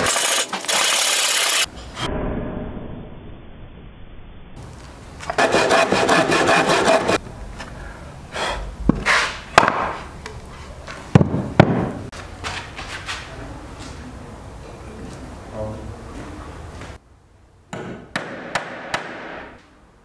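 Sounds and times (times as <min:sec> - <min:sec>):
saw rasping through wood: 0:05.4 - 0:07.2
sharp knocks: 0:17.7 - 0:19.6.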